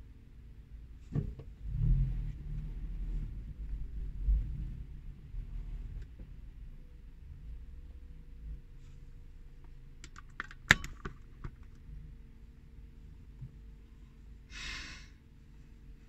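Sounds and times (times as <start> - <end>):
car engine idling rumble: 0.0 - 14.5
short breathy hiss: 14.5 - 15.2.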